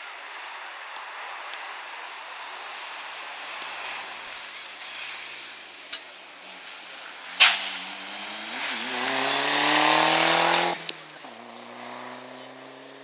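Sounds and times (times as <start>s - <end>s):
rally car engine accelerating: 6.4s - 13.0s
sharp bang: 7.4s - 7.9s.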